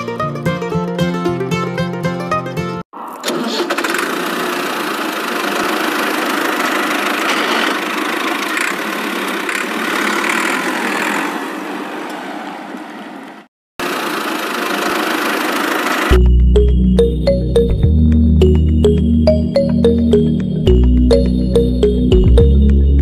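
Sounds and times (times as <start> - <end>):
small toy motor running: 4.6 - 11.3.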